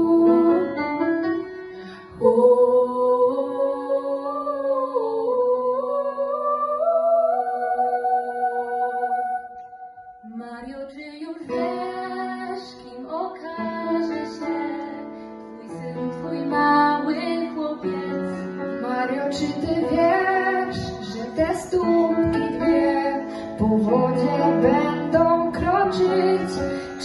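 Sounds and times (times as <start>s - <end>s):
grand piano accompaniment: 0.0s - 3.3s, 11.3s - 27.0s
girl singing: 2.1s - 15.0s, 15.6s - 27.0s.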